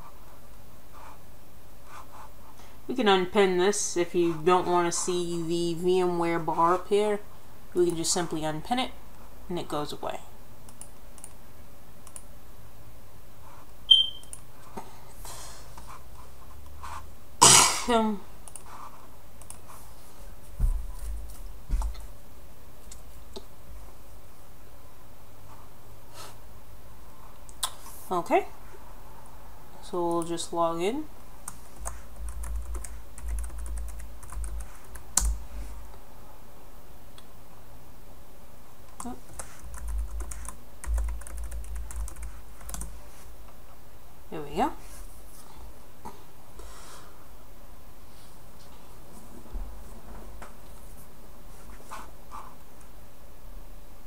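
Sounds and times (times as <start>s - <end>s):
high electronic beep: 13.9s - 14.3s
computer keyboard typing: 31.4s - 35.4s, 39.0s - 42.9s
low hum: 31.6s - 36.0s, 39.4s - 42.8s.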